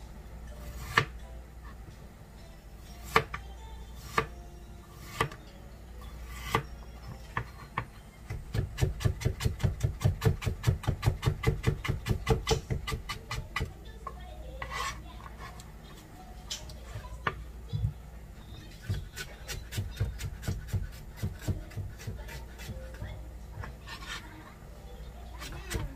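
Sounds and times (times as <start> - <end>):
knife chopping on plastic board: 3.0 - 3.4, 5.0 - 5.4, 7.3 - 13.7, 18.7 - 24.2.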